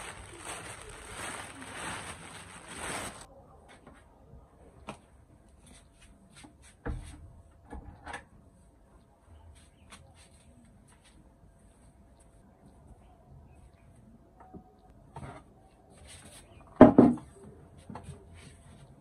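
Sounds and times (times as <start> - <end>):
plastic bag rustling: 0.0 - 3.3
straw broom rustling: 0.0 - 3.3.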